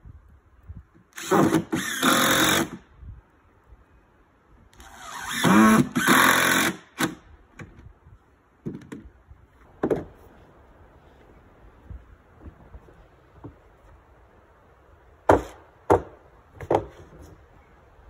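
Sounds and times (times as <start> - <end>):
cordless drill driving screw: 1.1 - 2.8, 4.8 - 7.2.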